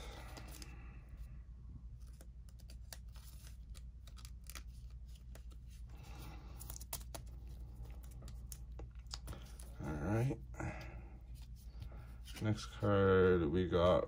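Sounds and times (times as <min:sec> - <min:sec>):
trading cards clicking and scraping: 0:00.0 - 0:00.7, 0:02.0 - 0:10.0
steady low hum: 0:00.0 - 0:14.0.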